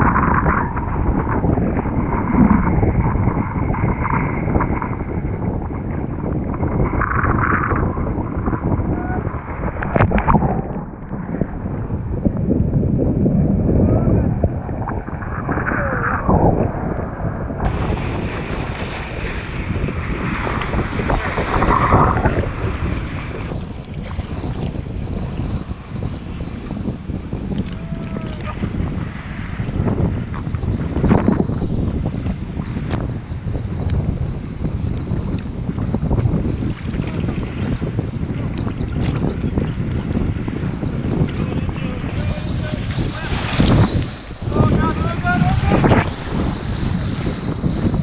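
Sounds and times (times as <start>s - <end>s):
kiteboard spray hissing: 0.0s - 23.5s, 40.2s - 48.0s
choppy water sloshing: 0.0s - 48.0s
wind buffeting microphone: 0.0s - 48.0s.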